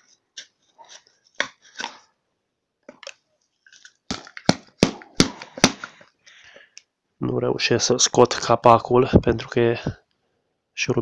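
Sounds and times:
sharp knocks on cardboard tube: 4.1s - 5.9s.

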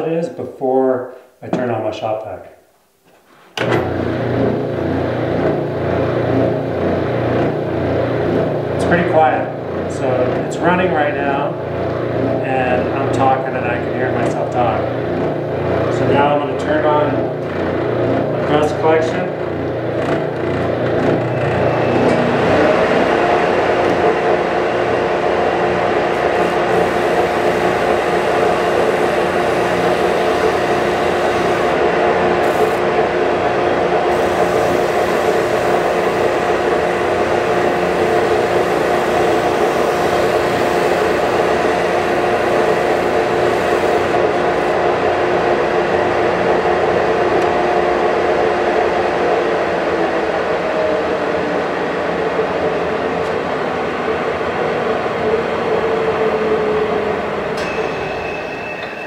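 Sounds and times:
shop vacuum droning: 3.0s - 59.0s
spindle sander sanding wood: 25.6s - 44.8s.

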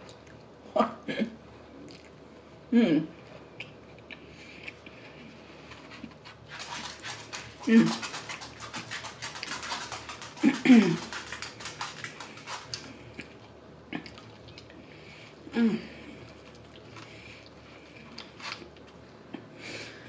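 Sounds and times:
chewing food: 1.9s - 2.2s, 3.6s - 15.0s, 16.2s - 19.0s.

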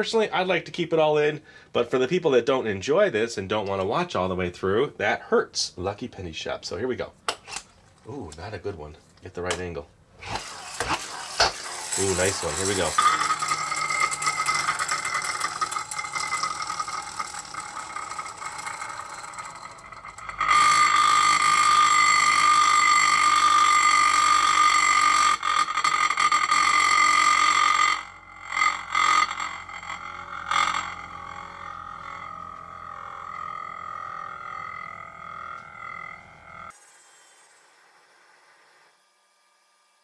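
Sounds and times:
spinning top whirring: 10.2s - 38.7s.

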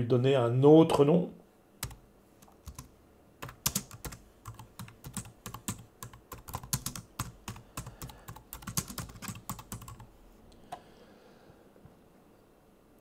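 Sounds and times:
computer keyboard typing: 1.8s - 10.1s.

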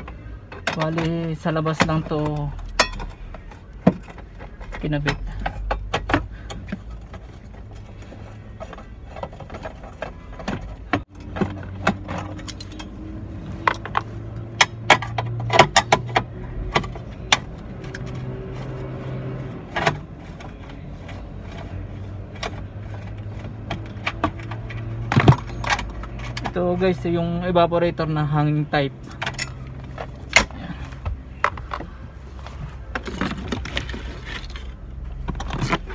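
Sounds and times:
metal tools clinking on fittings: 2.2s - 3.2s, 12.2s - 12.9s.

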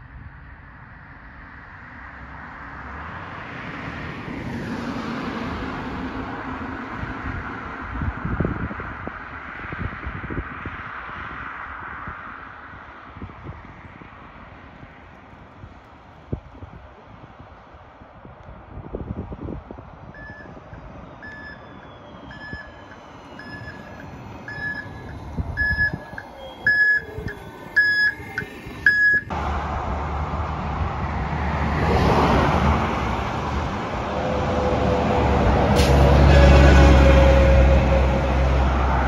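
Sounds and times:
diesel bus road noise: 0.0s - 39.0s
traffic: 0.0s - 39.0s
bus warning beeps: 20.2s - 29.3s.

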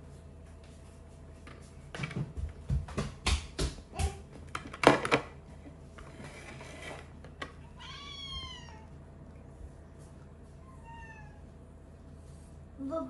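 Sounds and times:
cat meowing: 7.6s - 8.9s, 10.6s - 11.4s.

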